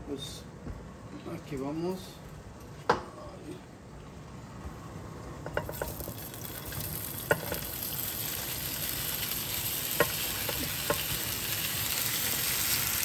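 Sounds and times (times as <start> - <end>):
sausage sizzling in a frying pan: 5.6 - 13.0
pieces knocking into a pan: 9.9 - 11.2.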